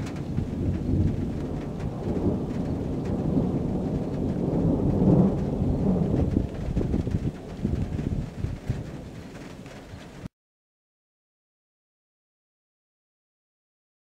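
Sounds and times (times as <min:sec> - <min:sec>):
rolling thunder: 0:00.0 - 0:10.3.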